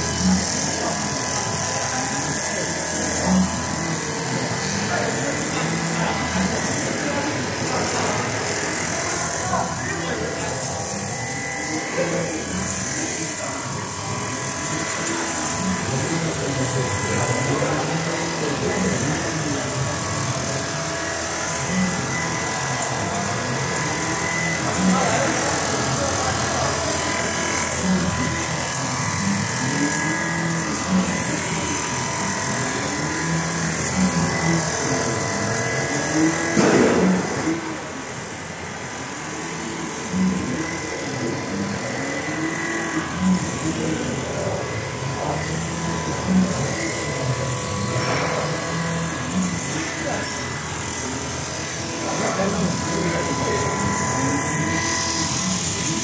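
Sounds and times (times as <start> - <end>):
sewing machine buzzing: 0.0 - 56.0
factory hum: 15.8 - 56.0.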